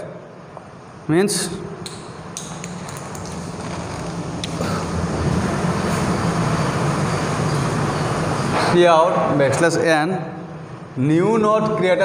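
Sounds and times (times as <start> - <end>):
low engine-like hum: 0.8 - 9.4.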